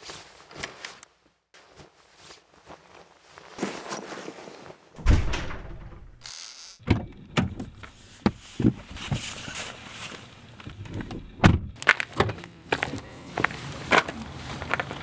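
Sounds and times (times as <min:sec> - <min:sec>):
car door opening and shutting: 0:05.0 - 0:09.5, 0:10.2 - 0:11.8.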